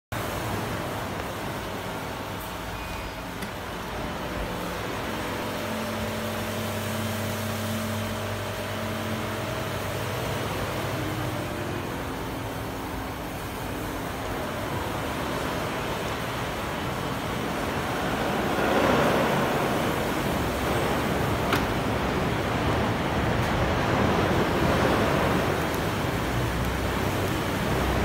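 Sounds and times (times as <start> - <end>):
steady background rush: 0.1 - 28.0
tailgate struts whirring: 18.7 - 24.4.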